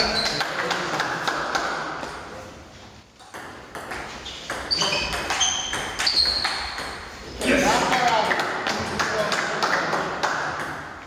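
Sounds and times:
shoes squeaking on floor: 0.0s - 0.5s, 3.8s - 7.2s.

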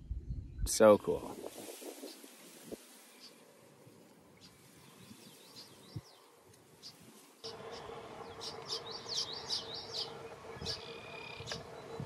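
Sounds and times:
fledgling bird begging chirps: 4.4s - 12.0s
steady low hum: 7.5s - 12.0s.

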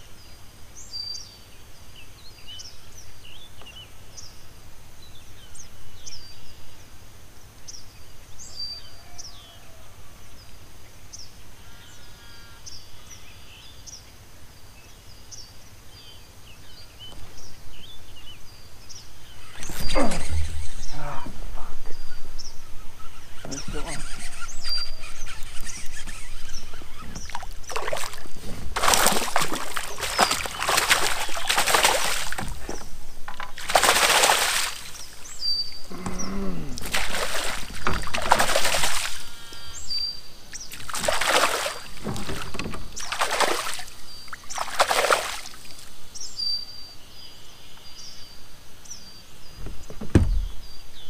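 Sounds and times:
small birds chirping: 0.0s - 9.6s, 10.3s - 51.0s
fish splashing in water: 23.2s - 39.7s, 40.5s - 46.0s.

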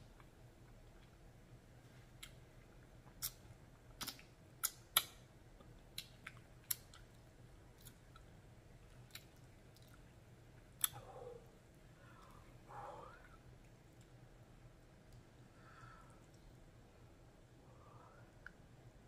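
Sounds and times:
person chewing wet mouth clicks: 3.1s - 3.4s, 4.0s - 5.2s, 5.9s - 7.2s, 10.8s - 11.1s.

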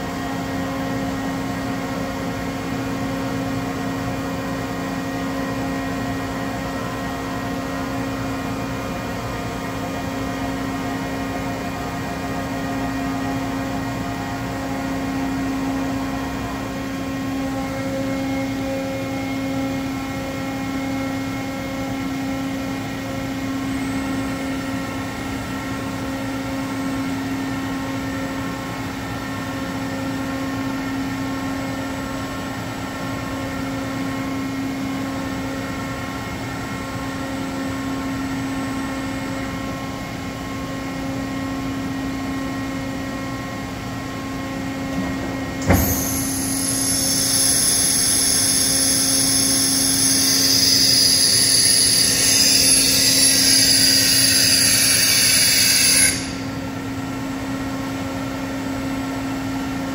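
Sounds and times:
milling machine hum: 41.9s - 57.0s
high-pitched spindle whine: 45.6s - 56.6s.

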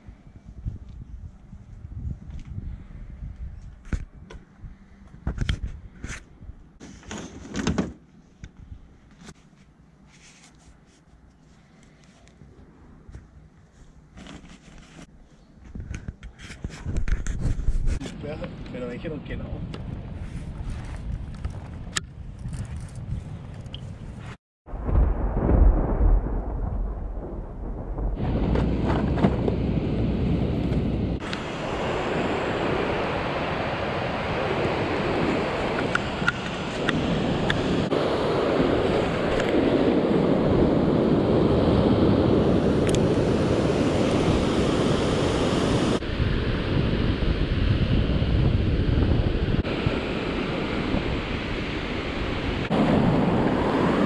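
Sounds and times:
wind rumbling on microphone: 0.0s - 6.8s, 15.6s - 54.0s
surf breaking on beach: 24.9s - 54.0s.

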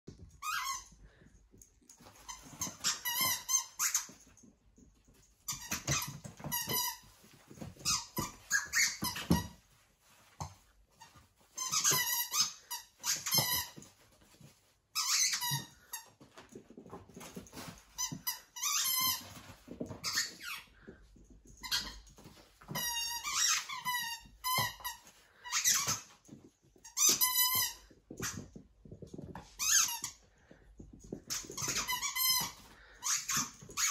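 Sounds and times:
squeaky toy squeaking: 0.4s - 0.9s, 2.2s - 4.2s, 7.8s - 9.6s, 11.5s - 13.8s, 15.0s - 15.8s, 22.7s - 26.1s, 29.6s - 30.2s.

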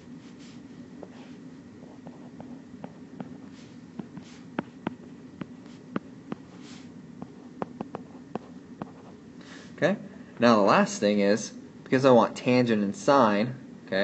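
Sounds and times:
steady low hum: 0.0s - 14.0s
stylus tapping on tablet screen: 4.0s - 6.6s, 7.2s - 9.0s.

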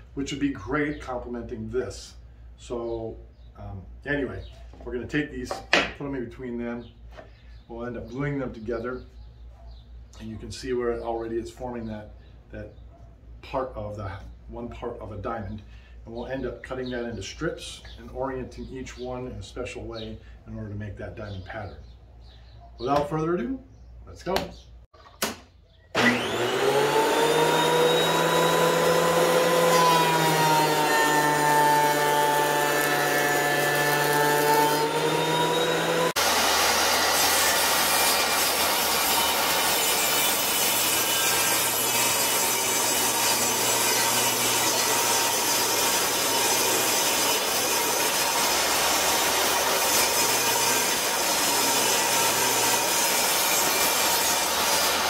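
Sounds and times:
table saw ripping board: 25.2s - 55.0s
thickness planer whining hum: 25.9s - 55.0s.

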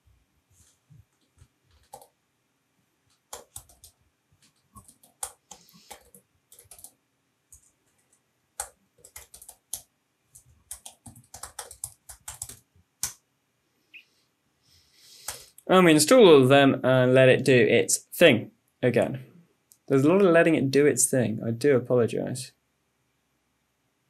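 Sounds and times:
computer keyboard typing: 1.1s - 2.2s, 3.1s - 13.2s.

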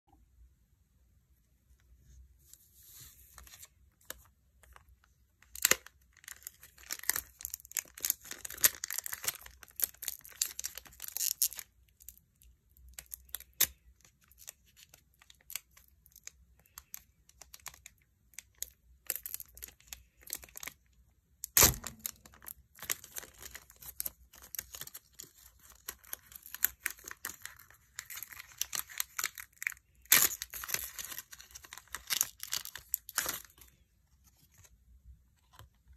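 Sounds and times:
foil wrappers crinkling and tearing: 5.4s - 11.7s, 21.4s - 33.7s.

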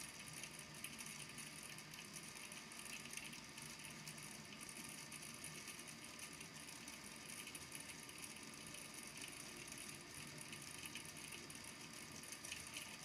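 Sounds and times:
low steady hum: 0.0s - 13.0s
tiny balls tapping in water tank: 0.0s - 13.0s.

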